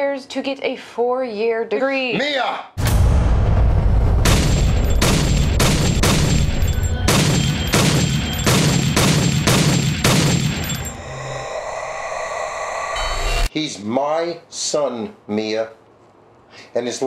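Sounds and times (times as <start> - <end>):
pistol shots: 4.2 - 10.7.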